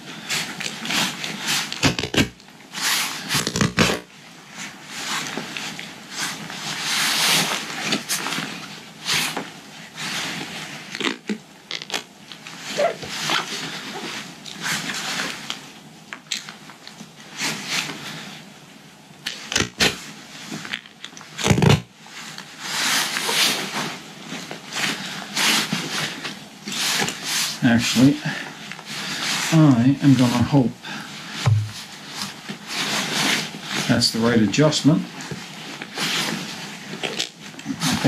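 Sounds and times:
duct tape ripping: 1.7s - 2.4s, 3.3s - 4.1s, 10.9s - 12.1s, 19.3s - 20.0s, 20.8s - 21.9s, 37.0s - 38.0s.

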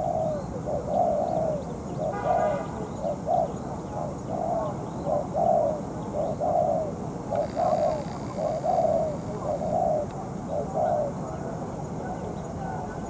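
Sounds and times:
dove cooing: 0.0s - 13.0s
faint high bird chirps: 7.3s - 11.1s.

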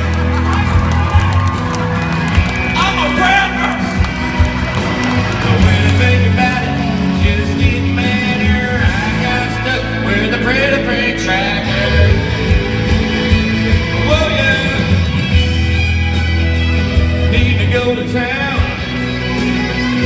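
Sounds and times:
strummed electric guitar: 0.0s - 20.0s
man singing: 5.4s - 12.4s, 17.1s - 19.0s.

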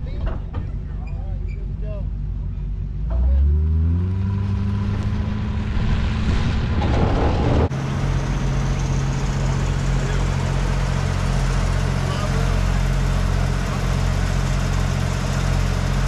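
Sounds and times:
engine running steadily: 0.0s - 16.0s
road and wind noise: 0.0s - 16.0s
vehicle engine pulling away: 2.5s - 16.0s.

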